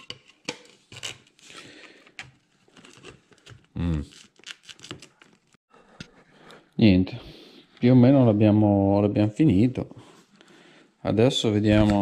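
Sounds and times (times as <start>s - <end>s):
grunt-like voice: 3.8s - 4.1s.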